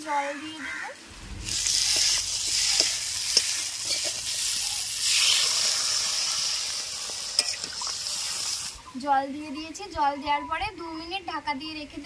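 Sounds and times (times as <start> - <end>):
vegetables sizzling in hot oil: 1.0 - 8.8
water poured into hot pan: 1.2 - 8.8.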